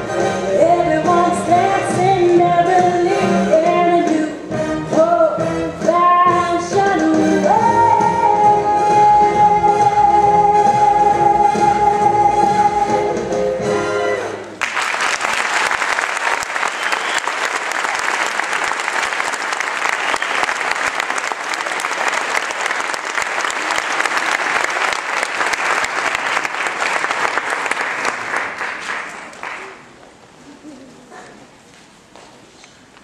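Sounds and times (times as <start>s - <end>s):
audience applause: 14.6s - 30.0s.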